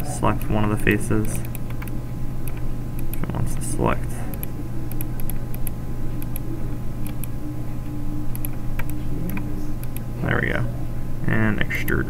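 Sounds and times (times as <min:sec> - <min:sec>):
computer mouse clicking: 0:00.0 - 0:03.4, 0:04.3 - 0:07.4, 0:08.3 - 0:10.1
low hum: 0:00.0 - 0:12.0.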